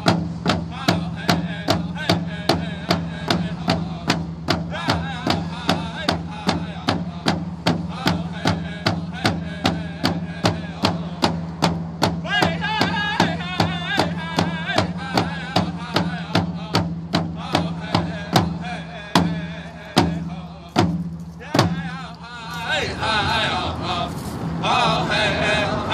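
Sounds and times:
group singing: 0:00.0 - 0:11.5, 0:12.2 - 0:25.9
frame drums beating: 0:00.0 - 0:22.1.

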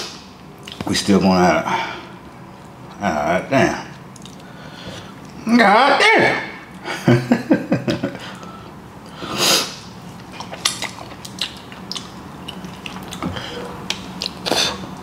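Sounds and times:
wet eating smacks: 0:04.1 - 0:04.5, 0:10.2 - 0:14.8
man sniffing: 0:08.2 - 0:09.8.

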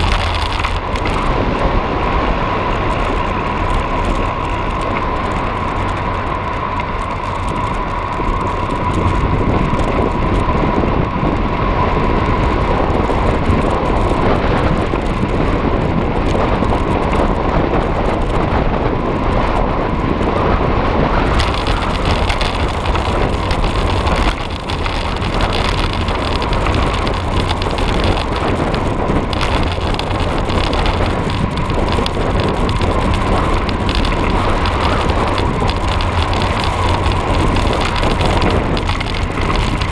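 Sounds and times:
tyre and road noise: 0:00.0 - 0:39.9
wind buffeting microphone: 0:00.0 - 0:39.9
thin constant whine: 0:21.2 - 0:39.9.

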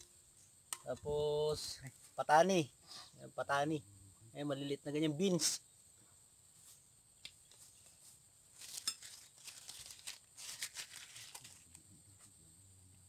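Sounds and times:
high insect drone: 0:00.0 - 0:13.0
dishes and containers rustling: 0:08.6 - 0:11.6.

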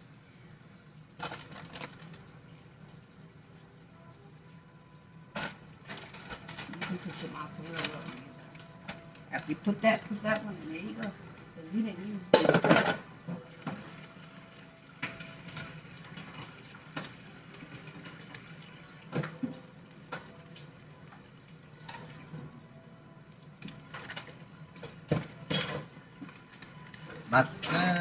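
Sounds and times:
faint steady hiss: 0:00.0 - 0:28.0
kitchen clicks and knocks: 0:12.3 - 0:13.8, 0:23.9 - 0:26.0.

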